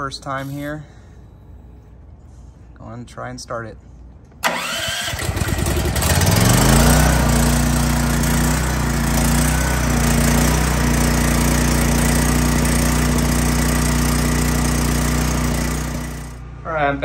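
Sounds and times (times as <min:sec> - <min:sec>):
generator starter cranking: 0:04.4 - 0:16.4
generator engine running: 0:04.4 - 0:17.0.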